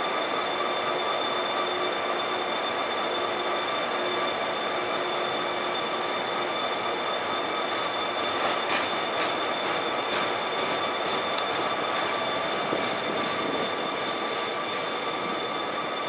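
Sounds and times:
high whining tones: 0.0 - 16.0
wheels clicking on rails: 4.6 - 16.0.

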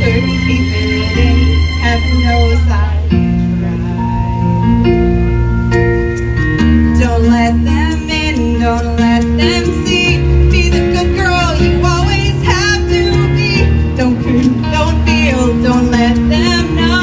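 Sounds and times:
woman singing into microphone: 0.0 - 3.2, 6.8 - 17.0
instrumental backing music: 0.0 - 17.0.

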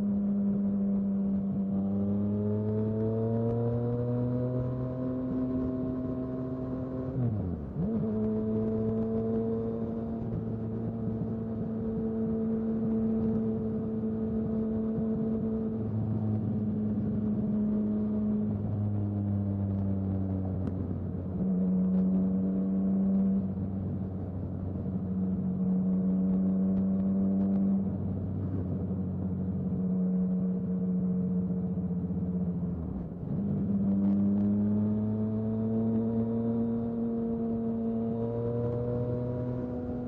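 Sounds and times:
motorcycle engine at speed: 0.0 - 40.0.

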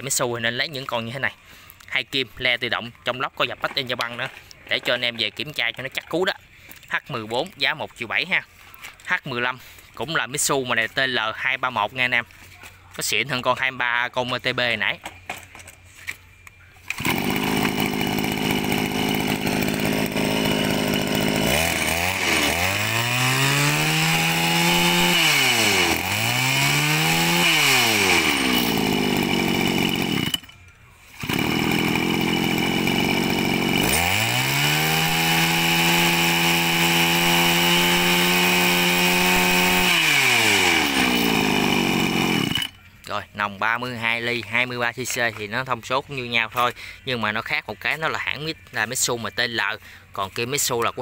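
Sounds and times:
brush cutter engine revving: 16.8 - 42.8.

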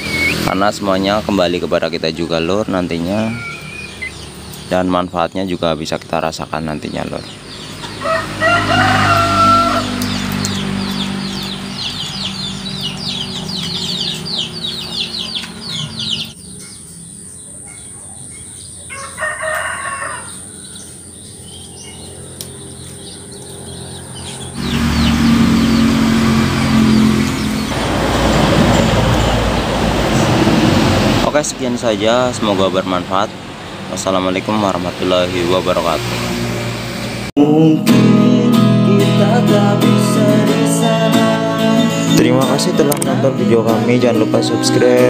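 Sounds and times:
high chirps: 0.0 - 19.0, 20.3 - 30.2
rooster crowing: 2.2 - 4.0, 7.8 - 10.2, 18.8 - 21.2.

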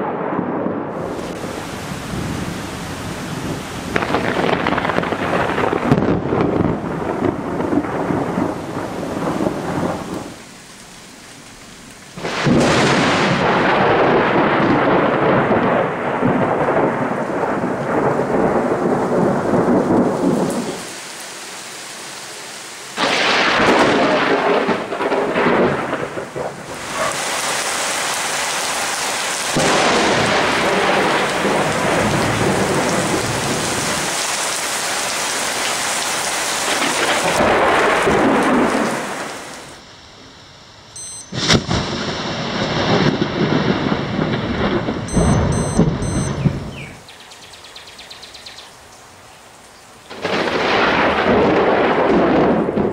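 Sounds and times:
thunder claps and rumbling: 0.0 - 10.4, 12.2 - 20.9, 23.0 - 27.6, 29.5 - 34.3, 36.6 - 39.8, 41.3 - 47.0, 50.1 - 52.9
heavy rain hissing: 0.9 - 47.3.

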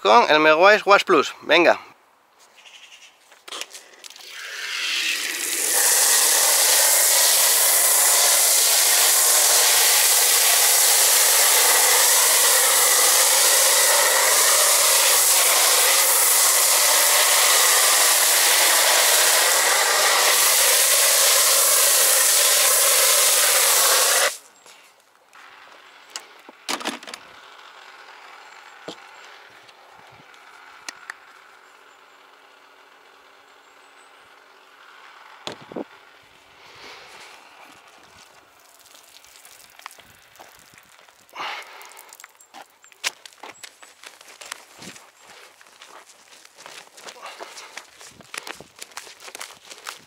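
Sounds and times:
pressure washer spraying: 4.2 - 24.5.

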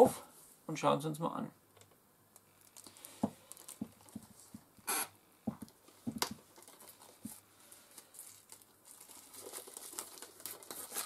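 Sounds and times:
plastic wrap crinkling: 2.3 - 4.6, 5.7 - 11.0.

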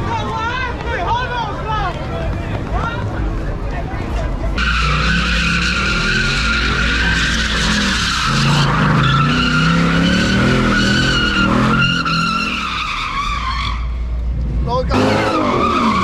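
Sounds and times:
tyres squealing on asphalt: 4.1 - 16.0
car engine at high revs: 4.6 - 12.7.

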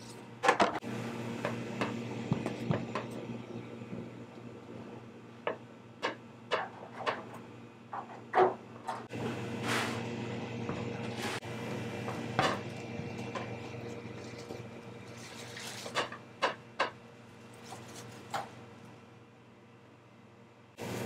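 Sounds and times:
steady machine hum: 0.0 - 21.0
kitchen clatter clicks and knocks: 5.5 - 7.4.

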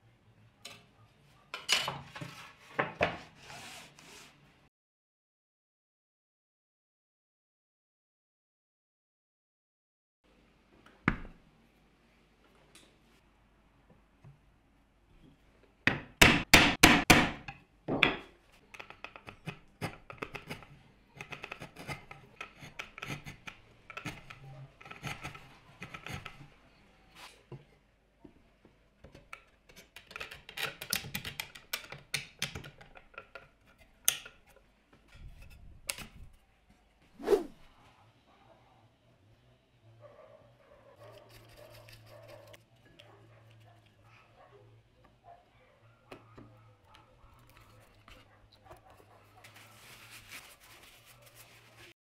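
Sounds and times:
chisel blade shaving wood: 21.2 - 26.4.

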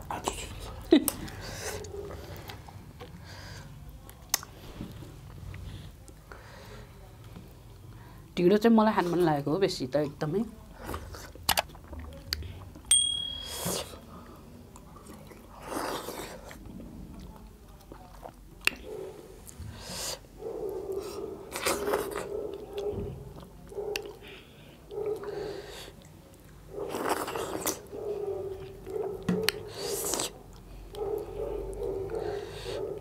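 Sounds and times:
people chewing and slurping: 0.0 - 8.3, 10.6 - 12.9, 13.5 - 33.0
high ping: 12.9 - 13.8.

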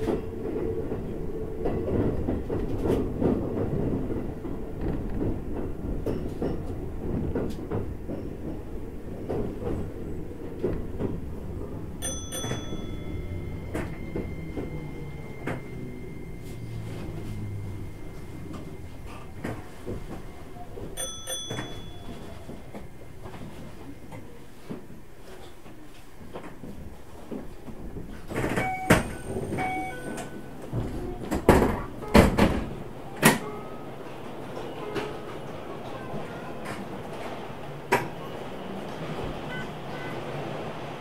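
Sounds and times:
train hum: 0.0 - 41.0
short beeps: 28.6 - 30.5.

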